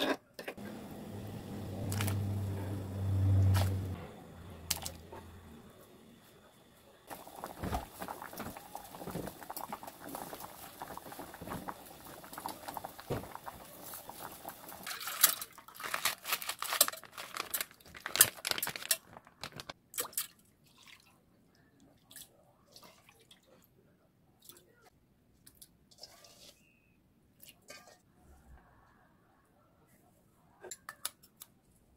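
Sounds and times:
water boiling with pops: 6.8 - 15.7.

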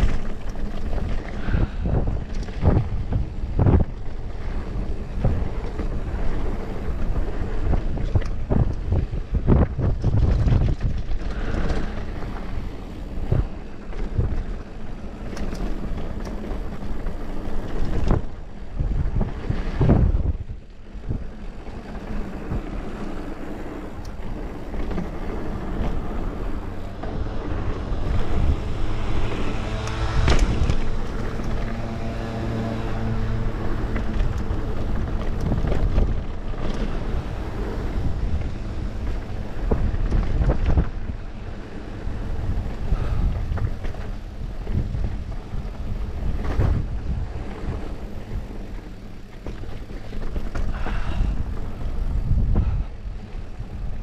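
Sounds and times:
tyres rumbling on dirt trail: 0.0 - 54.0
wind rushing over microphone: 0.0 - 54.0.

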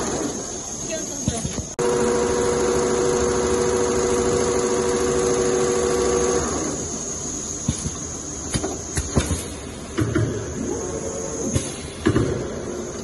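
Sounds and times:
sewing machine whine and clatter: 0.0 - 7.5.

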